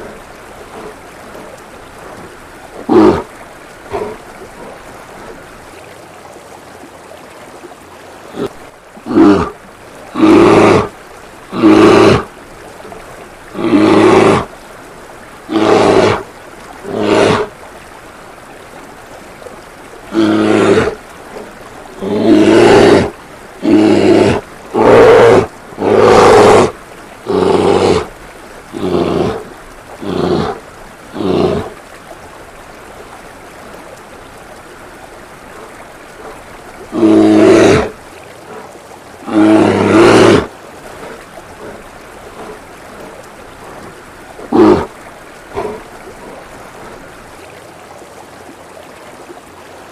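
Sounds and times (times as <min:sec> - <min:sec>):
bear growls and roars: 0:00.0 - 0:05.5, 0:08.2 - 0:14.6, 0:15.3 - 0:17.6, 0:20.0 - 0:31.8, 0:34.6 - 0:47.2
fountain water running: 0:00.0 - 0:49.9.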